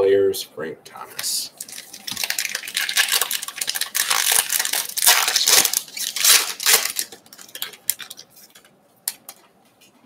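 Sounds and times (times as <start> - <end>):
wrapper ripping and crinkling: 1.5 - 8.6.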